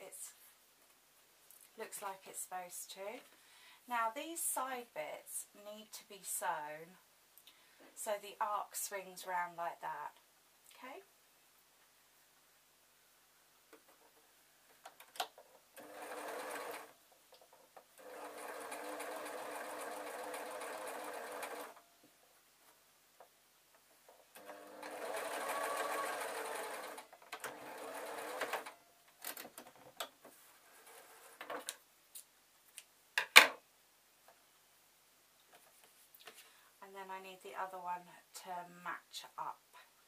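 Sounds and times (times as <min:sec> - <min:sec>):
sewing machine stitching: 0:15.7 - 0:17.0, 0:18.0 - 0:21.8, 0:24.3 - 0:28.8.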